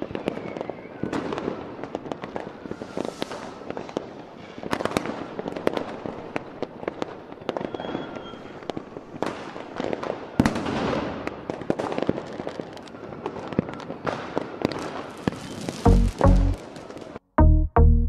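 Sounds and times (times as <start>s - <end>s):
fireworks bangs and crackling: 0.0s - 17.2s
electronic music with heavy drums: 15.9s - 16.6s.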